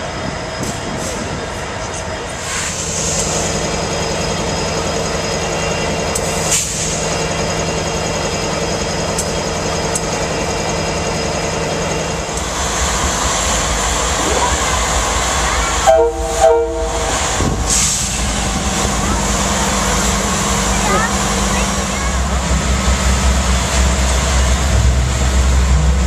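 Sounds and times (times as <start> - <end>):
diesel locomotives idling: 0.0 - 26.0
hiss: 2.4 - 3.6, 6.4 - 7.1, 17.2 - 18.4.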